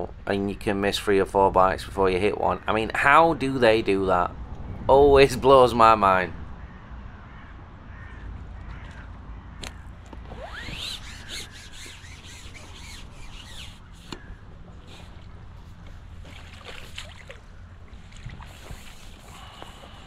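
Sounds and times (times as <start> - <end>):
low rumble: 4.3 - 10.0
fish splashing at water surface: 16.2 - 20.0.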